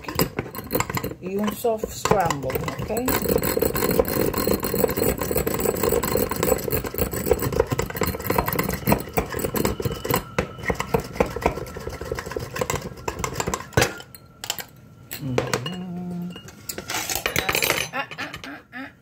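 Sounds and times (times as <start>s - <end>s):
whisk clattering against bowl: 0.0s - 14.0s.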